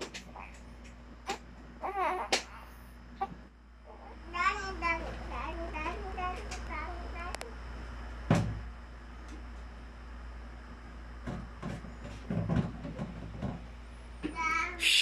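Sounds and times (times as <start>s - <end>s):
plastic knocks and bumps: 8.3s - 8.6s, 11.2s - 13.7s
child vocal sound: 14.5s - 15.0s.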